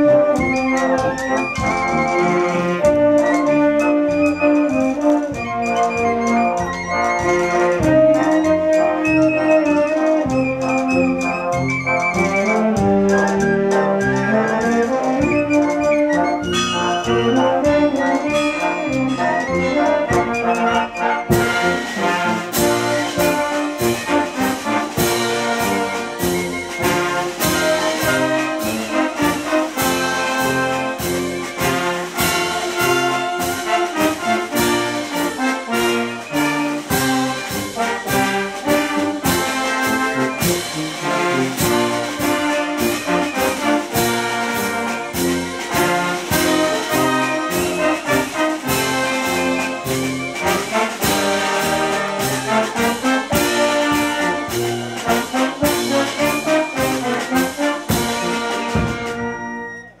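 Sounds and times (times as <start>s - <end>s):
brass band playing a march: 0.0s - 60.0s
steady drum beat: 16.2s - 59.4s.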